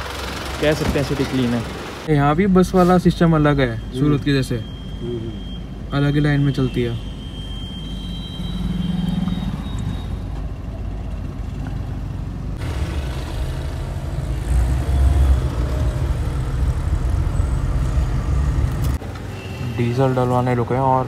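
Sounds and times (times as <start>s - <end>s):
car engine and road rumble: 0.0s - 21.0s.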